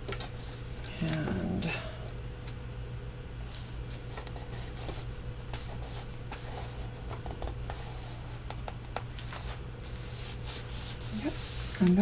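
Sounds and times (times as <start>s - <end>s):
steady low hum: 0.0s - 12.0s
paper rustling and sliding: 9.2s - 12.0s.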